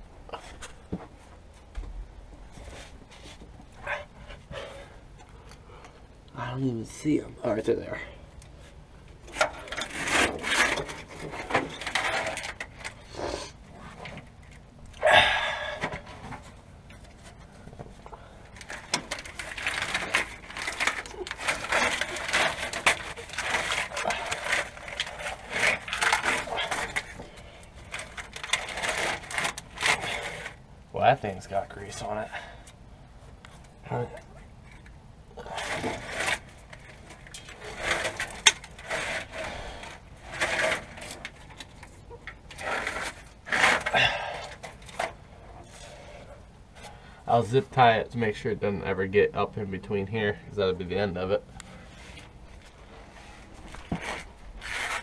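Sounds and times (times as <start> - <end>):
rustling and scraping handling noises: 0.3 - 15.0, 15.6 - 55.0
loud short scrape: 53.2 - 55.0.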